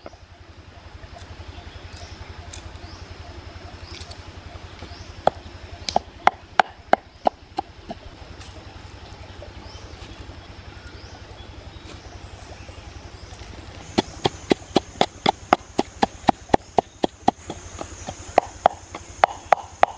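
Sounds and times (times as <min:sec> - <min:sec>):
steady low hum: 0:00.0 - 0:19.9
wooden pestle knocking in mortar: 0:14.0 - 0:19.9.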